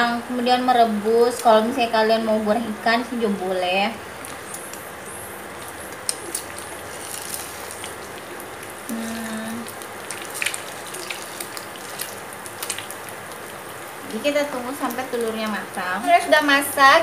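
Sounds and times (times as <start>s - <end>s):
egg sizzling in oil: 3.9s - 17.0s.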